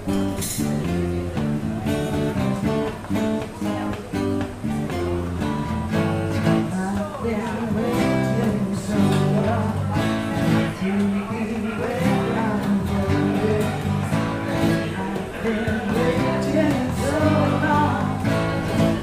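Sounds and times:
strummed acoustic guitar: 0.0s - 19.0s
voices singing together: 6.4s - 19.0s.

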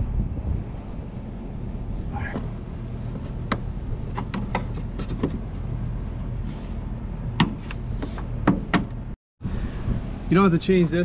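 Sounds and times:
low rumble: 9.4s - 11.0s.

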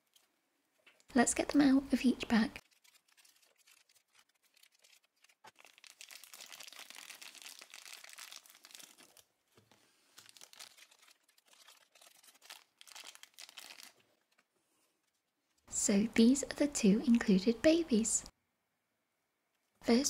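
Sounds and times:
plastic bags crinkling: 2.6s - 14.5s.

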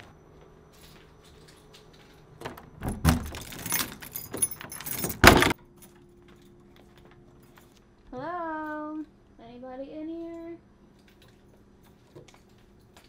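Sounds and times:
keys jangling: 0.8s - 7.8s
key scraping in door lock: 2.4s - 5.6s
lock clunk: 2.4s - 5.6s.

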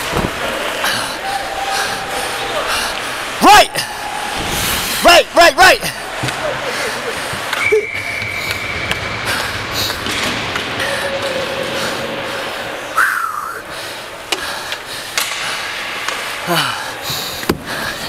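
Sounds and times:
hockey sticks and puck knocking: 14.3s - 16.3s.

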